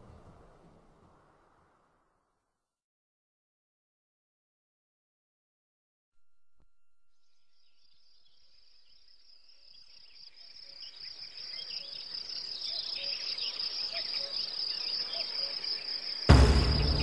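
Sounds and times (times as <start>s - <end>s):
faint insect chirps: 6.2s - 17.0s
high-pitched insect chorus: 7.5s - 17.0s
music: 16.3s - 17.0s.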